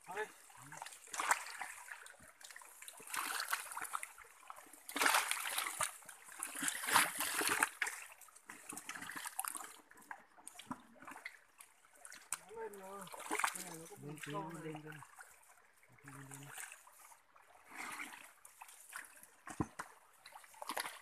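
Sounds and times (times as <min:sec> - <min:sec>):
hands splashing in stream water: 0:00.8 - 0:04.2, 0:04.8 - 0:09.8, 0:17.6 - 0:21.0.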